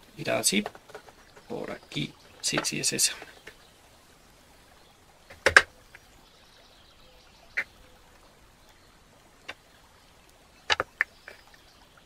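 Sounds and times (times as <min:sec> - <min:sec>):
wooden pieces knocking and clicking: 0:05.3 - 0:05.7, 0:10.7 - 0:11.5.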